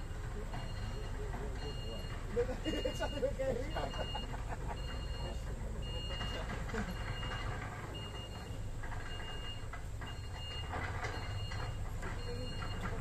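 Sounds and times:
diesel truck engine rumble: 0:00.0 - 0:13.0
back-up alarm beeping: 0:00.5 - 0:13.0.

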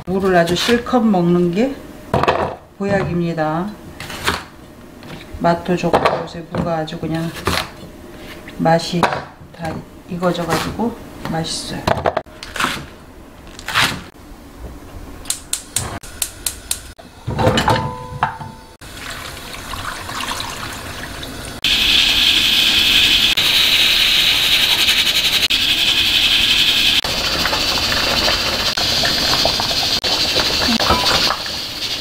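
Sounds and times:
water hissing in a pan: 0:18.8 - 0:32.0
cookware clink: 0:30.8 - 0:31.4.

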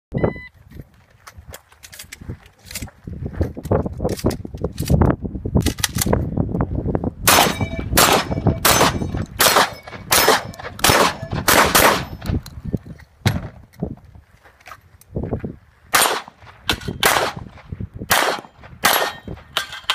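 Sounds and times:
steel targets ringing: 0:07.3 - 0:11.4
gunshots: 0:07.3 - 0:12.3, 0:15.9 - 0:19.9.

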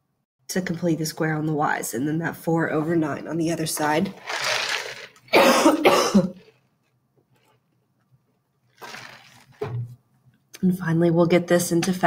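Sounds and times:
woman coughing: 0:05.3 - 0:06.5.

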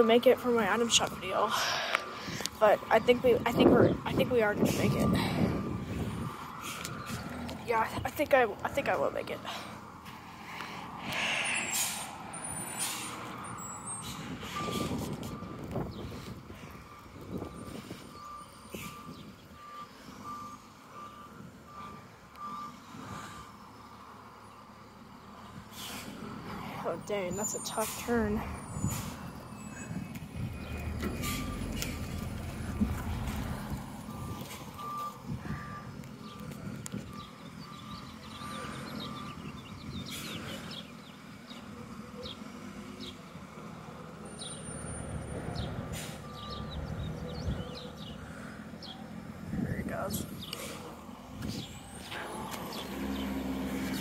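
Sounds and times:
truck reversing alarm beeping: 0:00.0 - 0:10.1, 0:10.7 - 0:54.0
low engine rumble: 0:00.0 - 0:54.0
small birds chirping: 0:17.1 - 0:21.2, 0:34.1 - 0:43.4, 0:45.6 - 0:54.0.

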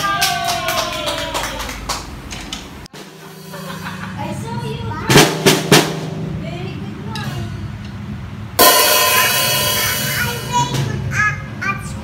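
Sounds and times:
cymbal struck with drumstick: 0:02.9 - 0:06.4, 0:08.6 - 0:11.0.

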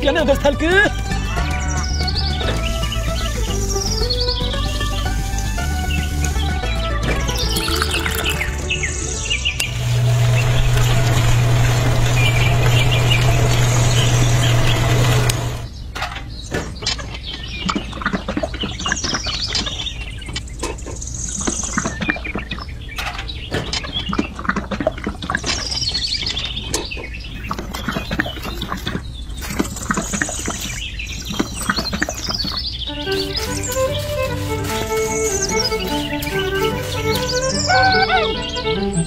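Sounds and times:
birds chirping: 0:00.0 - 0:17.8, 0:25.4 - 0:39.0
wet concrete and grit pouring: 0:07.3 - 0:08.6, 0:33.0 - 0:37.5
small electric motor humming: 0:09.6 - 0:15.7, 0:33.0 - 0:38.3.

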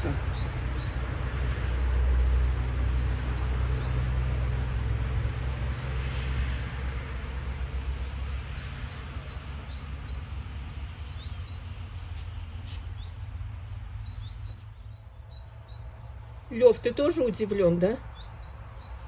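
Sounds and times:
small birds chirping: 0:00.0 - 0:01.2, 0:07.9 - 0:19.0.

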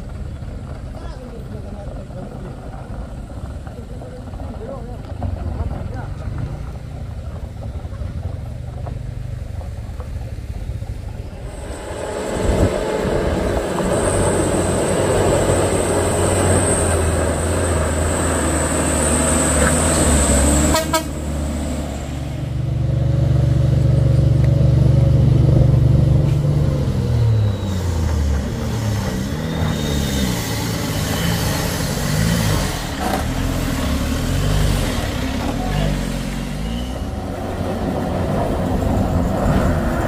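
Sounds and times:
heavy truck engine running: 0:00.0 - 0:40.0
high thin whine: 0:11.2 - 0:17.1.

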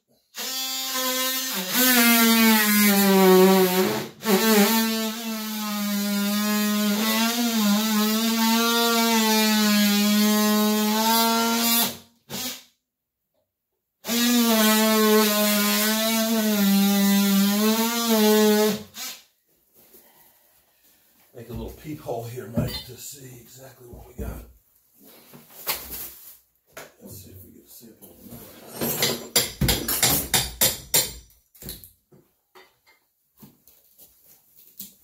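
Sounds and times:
power tool cutting wood: 0:00.4 - 0:12.6, 0:14.0 - 0:19.2.

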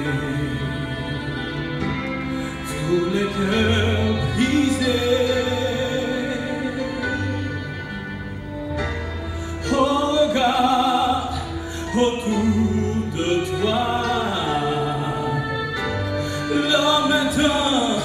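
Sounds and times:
instrumental accompaniment with bass: 0:00.0 - 0:18.0
man singing gospel into microphone: 0:02.6 - 0:07.4, 0:09.6 - 0:18.0.

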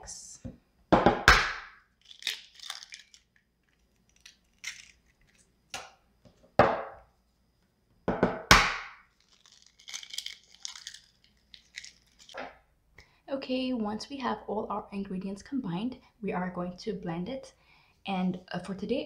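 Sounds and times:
eggshell crackling apart: 0:01.9 - 0:05.6, 0:09.1 - 0:12.4.

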